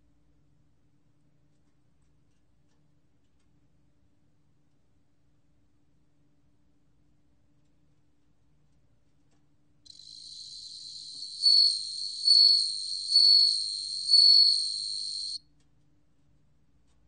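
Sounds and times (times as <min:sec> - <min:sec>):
cricket ringing trill: 0:09.9 - 0:15.4.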